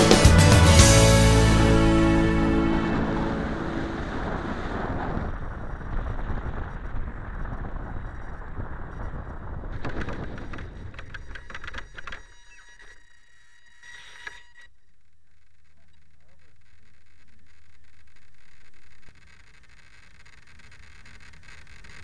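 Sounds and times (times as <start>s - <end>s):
airflow rushing: 0.0s - 5.3s.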